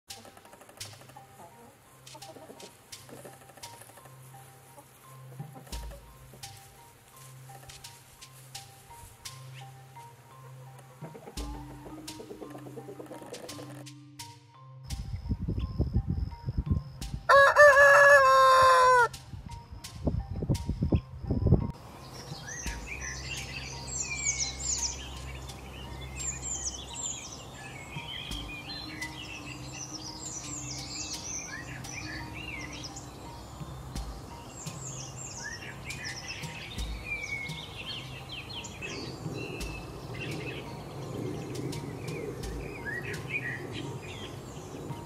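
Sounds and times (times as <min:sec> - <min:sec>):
songbirds chirping: 0:00.1 - 0:45.0.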